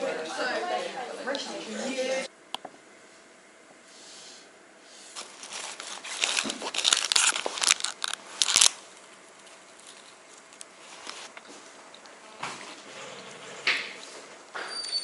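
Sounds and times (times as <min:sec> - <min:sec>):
plastic wrapper rustling and crackling: 0:05.2 - 0:11.4.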